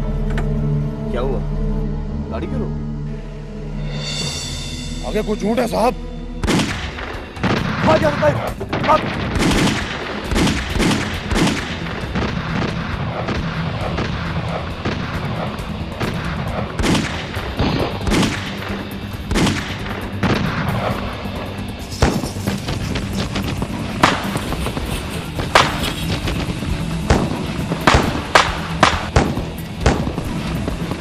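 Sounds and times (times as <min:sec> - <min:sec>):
background music: 0:00.0 - 0:31.0
rifle shots: 0:06.4 - 0:21.0, 0:22.0 - 0:30.3.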